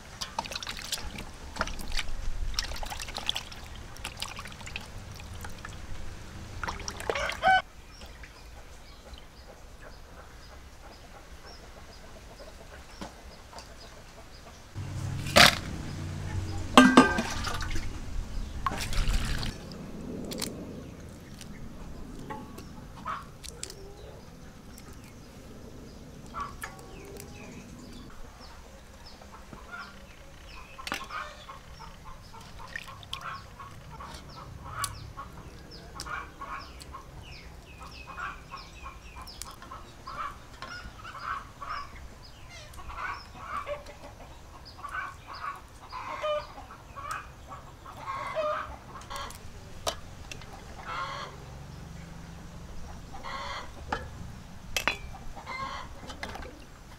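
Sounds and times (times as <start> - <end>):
chickens clucking: 6.6 - 20.2, 21.3 - 56.9.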